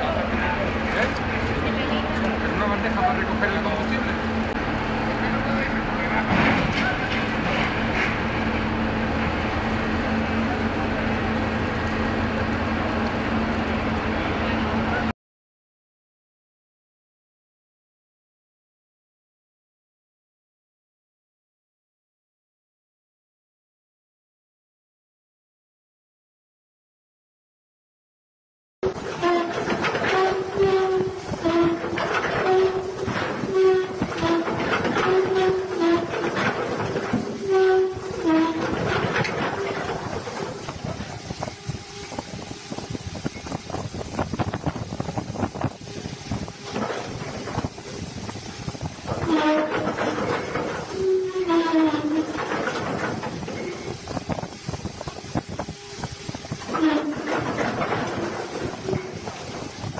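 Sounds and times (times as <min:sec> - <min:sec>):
heavy machinery drone: 0:00.0 - 0:15.1, 0:28.8 - 0:59.9
metallic squeals: 0:28.8 - 0:43.6, 0:49.1 - 0:59.8.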